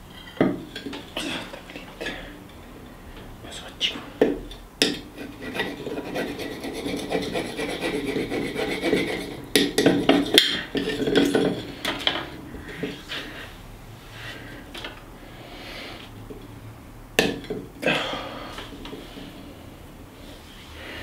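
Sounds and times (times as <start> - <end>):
knife scraping on rock: 5.2 - 9.4.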